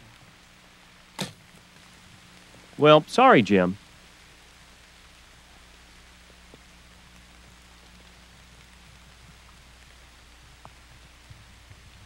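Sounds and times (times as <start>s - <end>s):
faint outdoor hiss: 0.0s - 12.0s
low steady hum: 0.0s - 12.0s
faint ticks: 3.8s - 12.0s.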